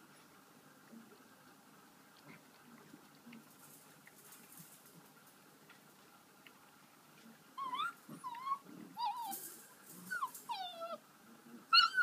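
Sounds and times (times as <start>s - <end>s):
puppies yipping and whining: 7.6s - 11.0s, 11.7s - 12.0s.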